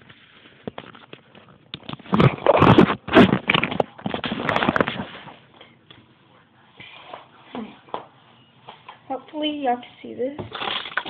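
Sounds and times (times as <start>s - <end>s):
objects rustling and clattering: 0.0s - 6.1s, 10.4s - 11.0s.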